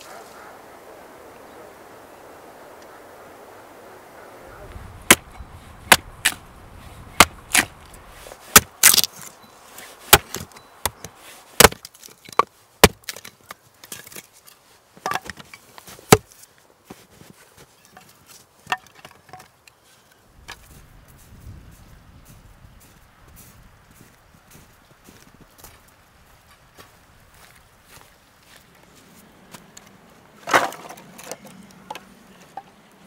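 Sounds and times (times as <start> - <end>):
axe chopping wood: 5.0 - 6.4, 7.1 - 7.8, 8.5 - 9.3, 10.1 - 13.3, 15.0 - 15.4, 16.1 - 16.3.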